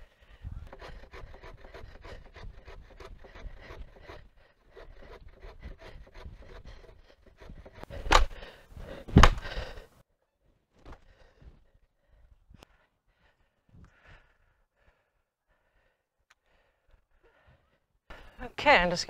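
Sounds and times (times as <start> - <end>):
hand saw cutting log: 0.0 - 9.8.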